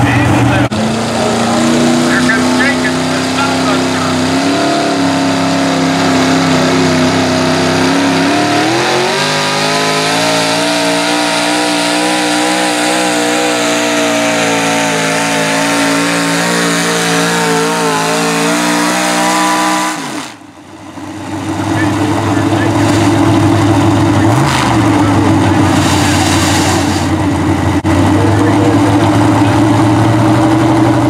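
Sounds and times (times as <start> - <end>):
tractor engine at high revs: 0.0 - 31.0.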